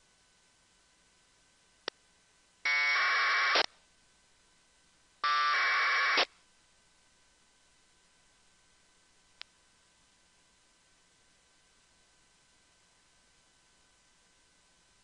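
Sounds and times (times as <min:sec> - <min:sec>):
buzzing data tone bursts: 0:02.7 - 0:03.7, 0:05.2 - 0:06.3.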